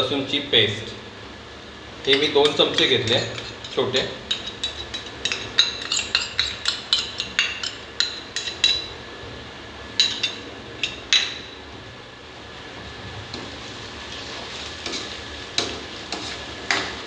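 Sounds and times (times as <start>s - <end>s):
steel spoon clinking on metal: 2.1s - 8.9s.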